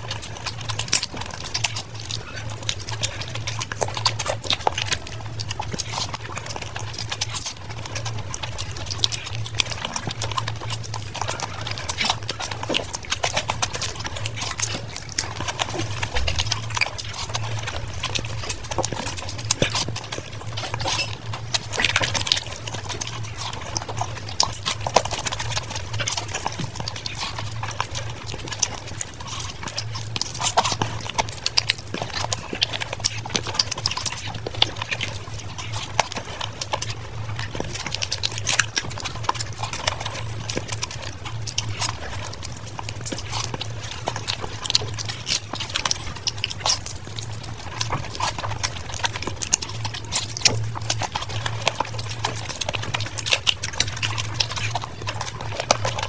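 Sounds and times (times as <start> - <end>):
steady low hum: 0.0 - 56.0
wet chewing and lip-smacking: 0.0 - 56.0.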